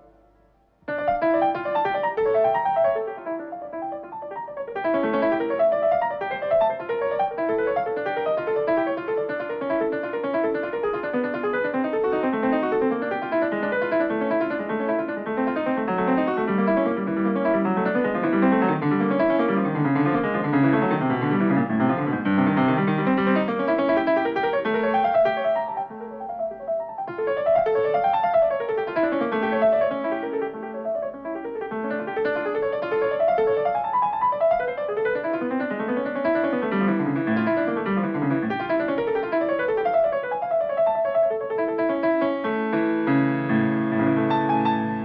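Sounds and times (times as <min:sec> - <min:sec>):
solo piano music: 0:00.0 - 0:45.0.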